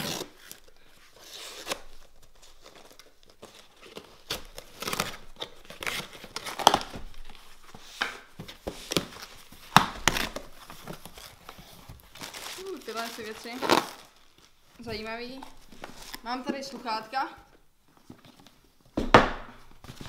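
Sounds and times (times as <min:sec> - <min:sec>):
knife slitting packing tape: 0:00.0 - 0:03.0, 0:03.8 - 0:06.9.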